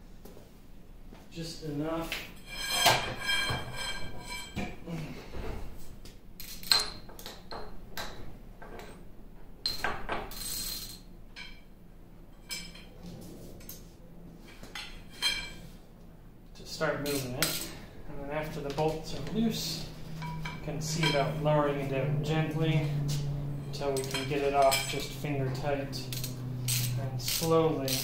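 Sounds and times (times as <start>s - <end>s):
steel tools clinking on metal: 17.0s - 17.8s, 19.4s - 21.4s, 23.6s - 28.0s.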